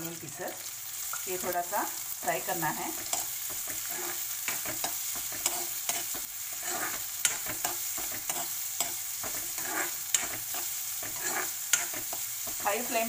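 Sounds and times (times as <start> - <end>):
onions sizzling in oil: 0.0 - 13.0
metal spoon scraping a pan: 2.7 - 13.0.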